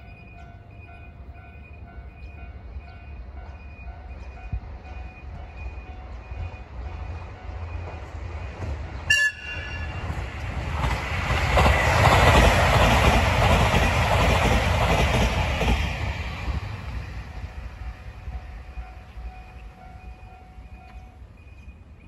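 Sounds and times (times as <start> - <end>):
train rumbling and clattering past: 0.0 - 22.0
train horn toot: 9.1 - 10.2.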